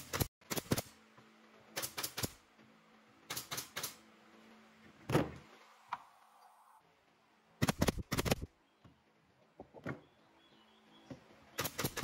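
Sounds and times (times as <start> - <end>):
nail gun shots into wood: 11.6 - 12.0.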